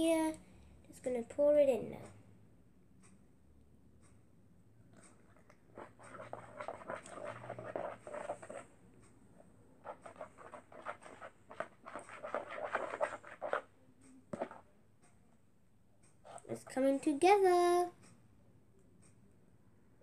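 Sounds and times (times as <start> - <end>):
slime squelching and crackling: 5.7 - 8.7, 9.8 - 13.7.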